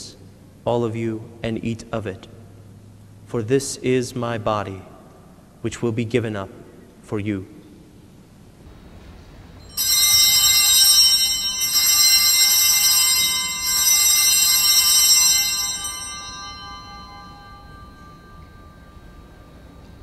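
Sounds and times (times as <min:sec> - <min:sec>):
altar bells ringing: 0:09.6 - 0:20.0.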